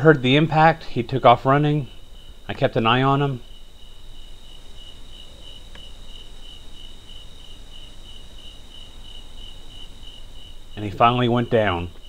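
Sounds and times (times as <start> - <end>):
crickets chirping: 0.0 - 12.0.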